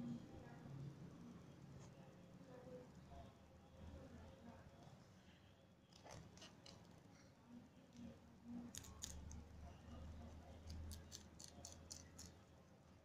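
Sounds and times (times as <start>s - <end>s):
rabbit chewing celery: 8.5s - 12.5s.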